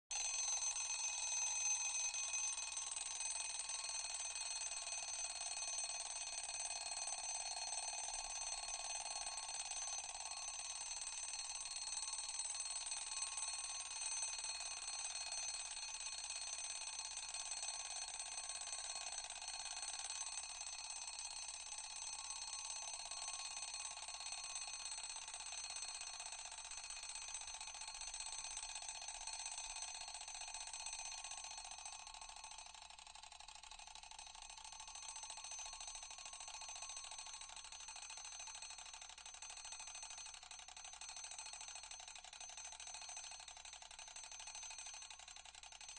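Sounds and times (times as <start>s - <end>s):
alarm clock bell ringing: 0.1s - 20.5s.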